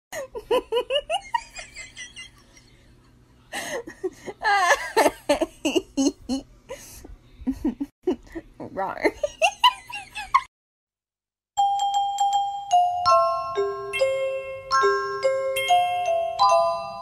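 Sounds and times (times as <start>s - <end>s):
person laughing: 0.2s - 10.5s.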